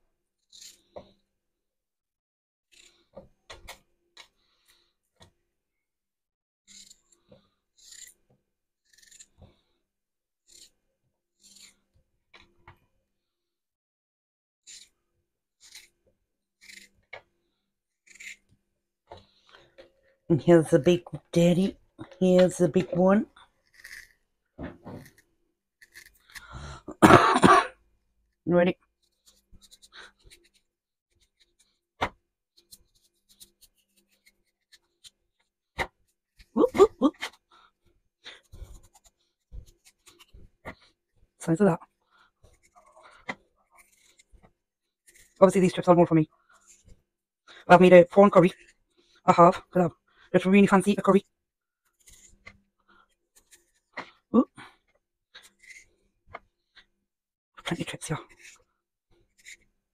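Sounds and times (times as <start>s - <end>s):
knife cutting potato: 0.4s - 1.0s, 6.7s - 9.7s, 10.4s - 10.8s, 11.4s - 12.5s, 14.7s - 15.0s, 15.6s - 16.0s, 16.6s - 17.3s, 18.0s - 18.6s, 23.6s - 26.5s, 29.2s - 35.2s, 38.2s - 41.0s, 42.4s - 45.8s, 51.9s - 52.6s, 55.4s - 55.9s
knife slicing raw potato: 6.7s - 8.2s, 8.9s - 9.7s, 10.5s - 10.8s, 15.6s - 16.0s, 16.6s - 17.3s, 18.0s - 18.5s, 23.6s - 25.2s, 25.8s - 26.5s, 42.4s - 44.3s, 55.4s - 55.9s.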